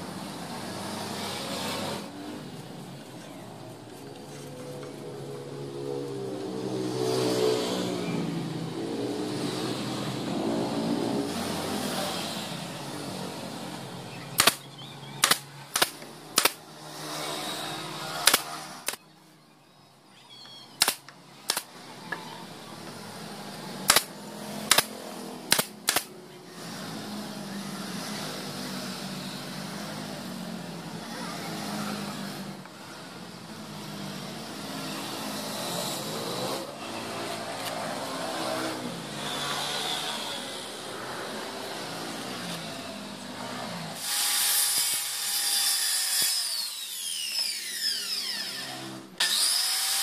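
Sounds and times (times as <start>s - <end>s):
nail gun firing: 14.4s - 14.6s, 15.2s - 16.6s, 18.2s - 19.0s, 20.8s - 21.7s, 23.8s - 26.2s, 44.0s - 47.6s
motor drone: 44.0s - 50.0s.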